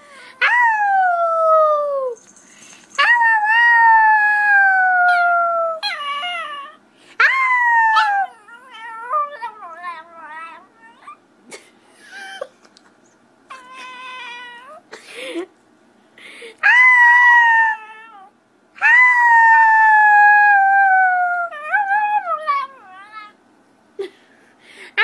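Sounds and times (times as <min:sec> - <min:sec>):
small dog howling: 0:03.0 - 0:11.2, 0:13.5 - 0:14.8, 0:16.6 - 0:23.4.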